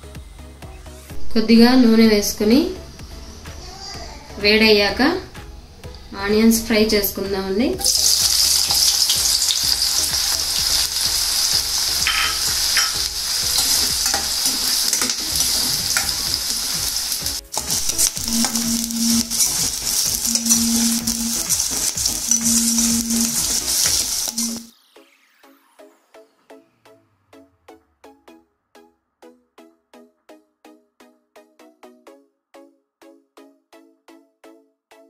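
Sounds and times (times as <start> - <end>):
onions sizzling in hot oil: 7.8 - 24.7
spoon scraping a steel pan: 11.7 - 16.4, 17.5 - 24.7.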